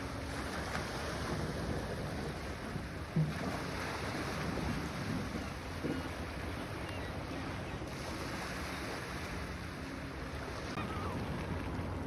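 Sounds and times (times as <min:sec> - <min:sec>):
waves washing onto shore: 0:00.0 - 0:12.0
wind rumbling on microphone: 0:00.0 - 0:12.0
faint gull calls: 0:10.6 - 0:11.4.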